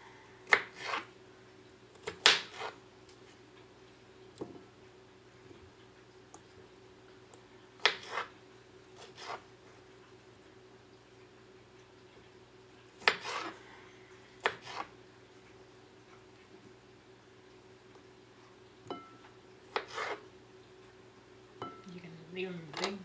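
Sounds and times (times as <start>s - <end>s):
knife slicing cucumber: 0.5s - 1.1s, 2.0s - 2.8s, 7.8s - 8.3s, 9.0s - 9.5s, 13.0s - 13.6s, 14.4s - 14.9s, 19.7s - 20.2s.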